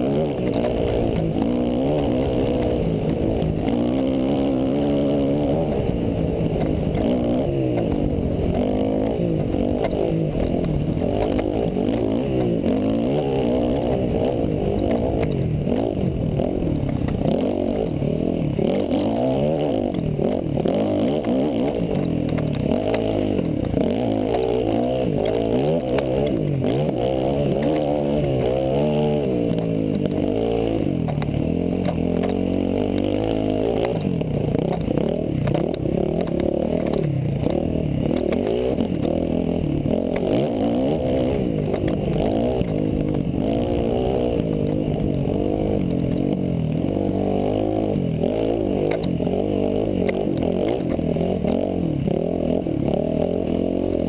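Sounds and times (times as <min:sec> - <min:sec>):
dirt bike engine revving: 0:00.0 - 0:54.0
bike rattling and knocking: 0:20.0 - 0:52.3.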